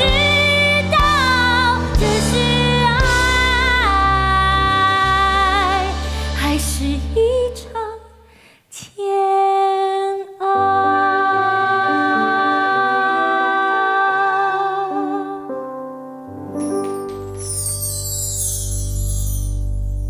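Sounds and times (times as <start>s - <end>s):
bass line: 0.0s - 7.8s
person singing: 0.0s - 8.1s, 8.9s - 15.6s.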